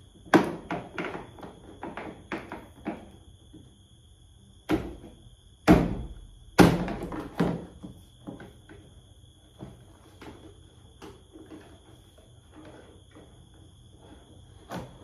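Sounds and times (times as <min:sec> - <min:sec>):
loud plastic knocks: 0:00.2 - 0:03.2, 0:04.7 - 0:08.6.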